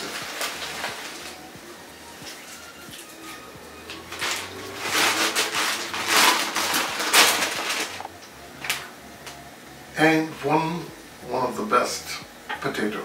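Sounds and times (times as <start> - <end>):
plastic bag crinkling: 0.0 - 8.9.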